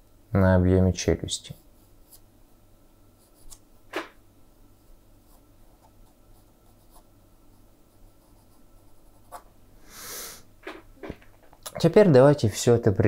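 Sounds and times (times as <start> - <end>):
pencil scratching on paper: 7.9 - 9.5.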